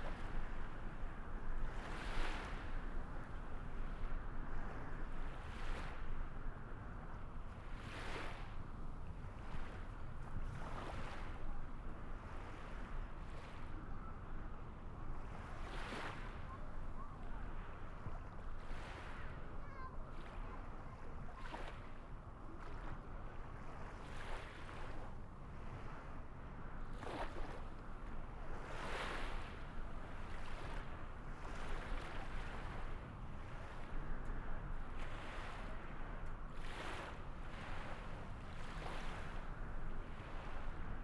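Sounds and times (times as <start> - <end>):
low rumble of wind: 0.0 - 41.0
small waves washing in: 1.6 - 3.2, 18.6 - 27.8, 28.4 - 41.0.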